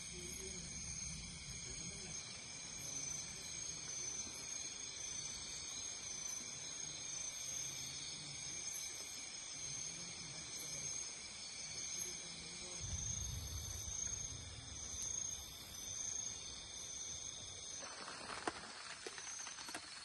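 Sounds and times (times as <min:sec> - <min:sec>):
crickets trilling: 0:00.0 - 0:20.0
low rumble: 0:12.8 - 0:16.7.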